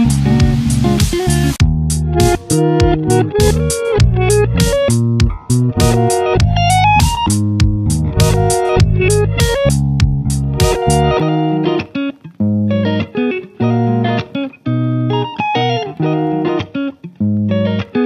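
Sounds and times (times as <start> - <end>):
plucked guitar music: 0.0 - 18.0.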